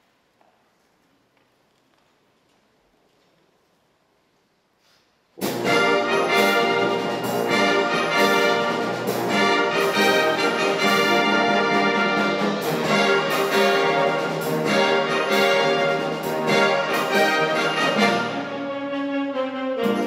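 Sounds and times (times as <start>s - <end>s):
accented band hits: 5.4s - 20.0s
wind band playing: 5.4s - 20.0s.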